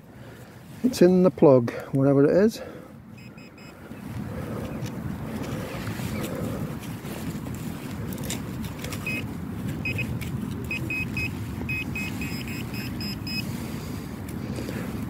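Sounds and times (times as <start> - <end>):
wind rumble on microphone: 3.0 - 15.0
pinpointer short high beeps: 3.2 - 3.8, 9.0 - 9.2, 9.8 - 10.1, 10.7 - 13.4.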